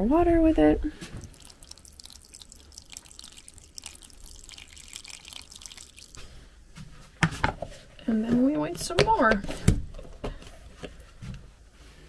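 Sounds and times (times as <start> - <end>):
tap water running into a bowl: 1.0 - 6.3.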